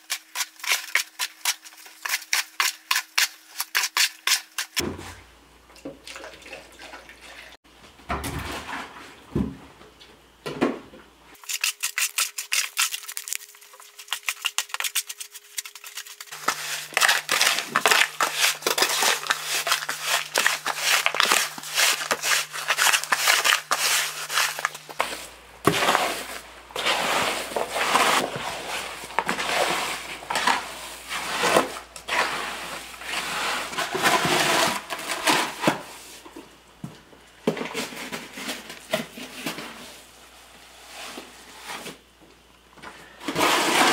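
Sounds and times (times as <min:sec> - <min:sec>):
hoe scraping wet concrete: 0:14.8 - 0:35.6, 0:43.2 - 0:43.9.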